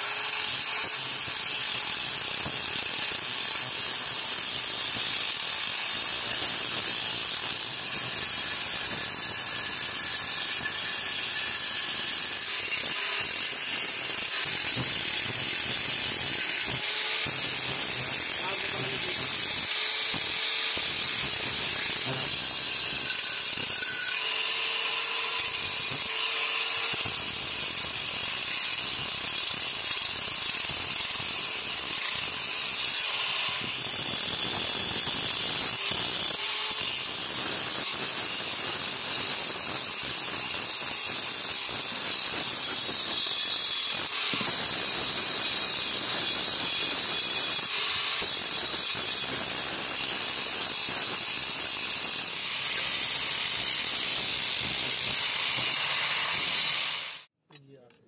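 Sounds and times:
angle grinder grinding steel: 0.0s - 57.3s.

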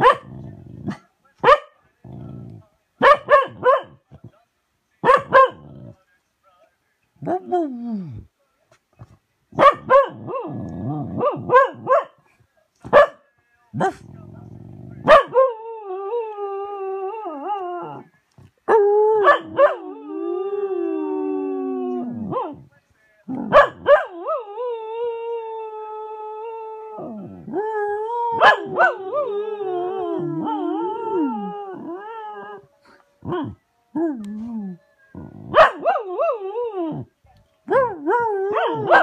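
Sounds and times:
dog howling: 18.7s - 22.6s, 23.8s - 37.1s.

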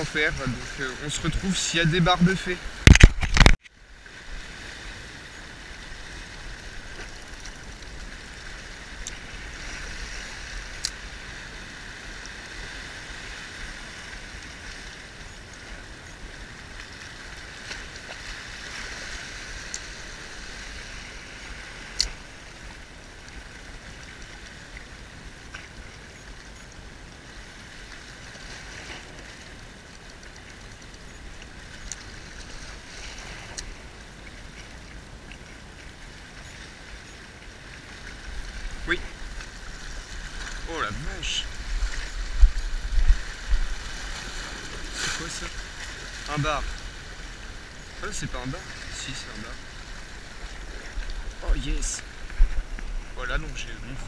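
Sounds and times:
waves washing over rocks: 0.0s - 3.6s, 26.9s - 54.0s.

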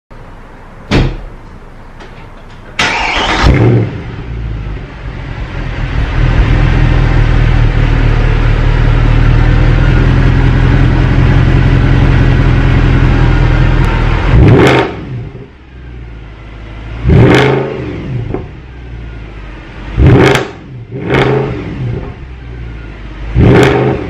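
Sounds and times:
car engine starting and idling: 0.1s - 24.0s.

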